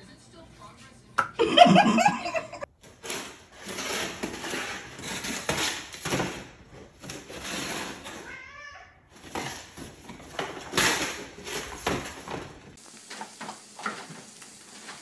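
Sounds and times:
person laughing loudly: 1.2s - 2.7s.

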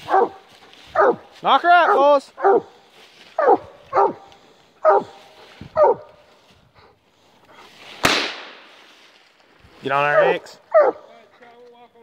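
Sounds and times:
hound barking: 0.0s - 7.0s, 10.0s - 11.3s.

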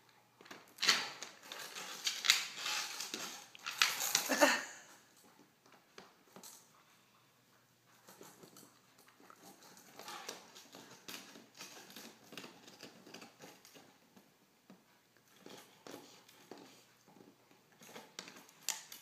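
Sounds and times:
dog gnawing on bone: 7.9s - 14.2s.

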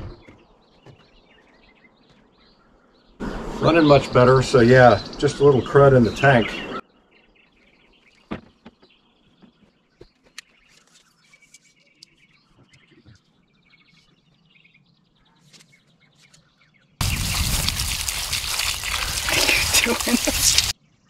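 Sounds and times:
birds chirping and trilling: 0.0s - 21.0s.

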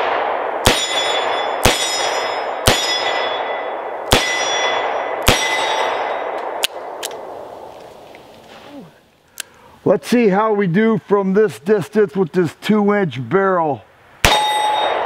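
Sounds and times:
steel target clanging: 0.7s - 6.4s, 14.2s - 15.0s.

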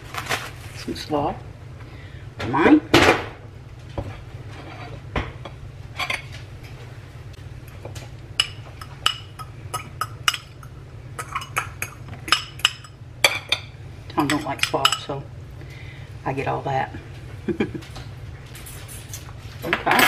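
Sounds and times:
steady low hum: 0.0s - 20.0s
utensil clinking against dish: 8.4s - 15.2s.

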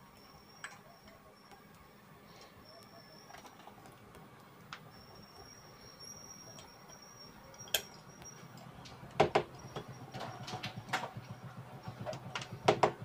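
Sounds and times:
sharp clicks and knocks: 8.6s - 13.0s.

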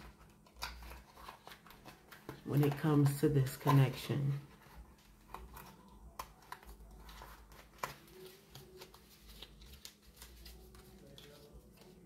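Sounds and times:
cards being shuffled: 0.0s - 12.0s.

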